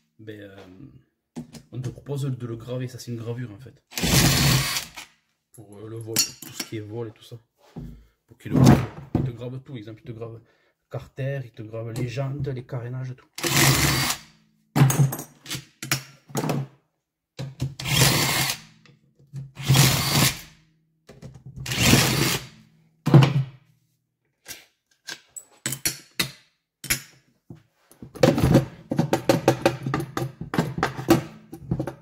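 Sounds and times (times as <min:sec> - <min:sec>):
power drill running: 0:04.0 - 0:05.0, 0:13.4 - 0:14.2, 0:17.8 - 0:18.6, 0:19.6 - 0:20.4, 0:21.7 - 0:22.5.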